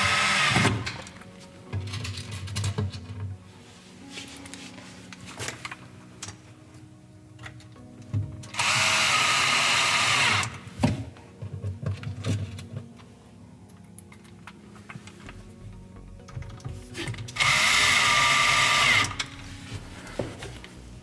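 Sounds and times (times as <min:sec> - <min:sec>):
cordless drill driving screw: 0:00.0 - 0:00.9, 0:08.5 - 0:10.6, 0:17.4 - 0:19.2
handling clicks and knocks: 0:00.8 - 0:03.4, 0:10.8 - 0:13.1.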